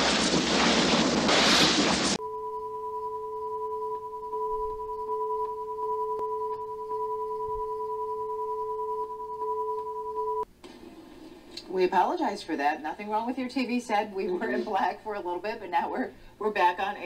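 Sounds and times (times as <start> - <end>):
steady electronic test tones: 2.2 - 10.4.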